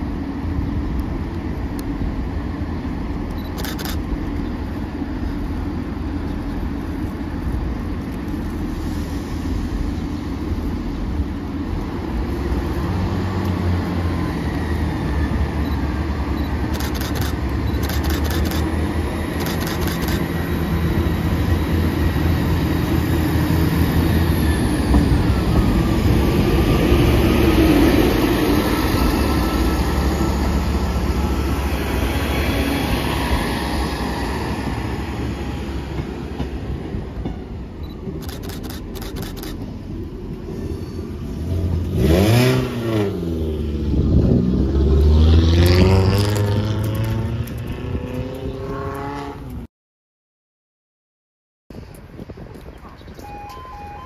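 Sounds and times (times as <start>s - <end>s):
train wheels rumbling on rails: 0.0s - 45.9s
train engines revving: 0.1s - 49.6s.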